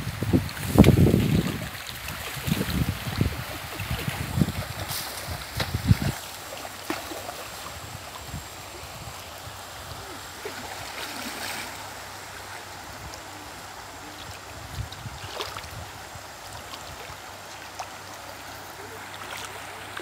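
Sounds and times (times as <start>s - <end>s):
rushing river water: 0.0s - 20.0s
water splashing around wading legs: 0.4s - 8.5s, 10.3s - 12.0s, 14.3s - 20.0s.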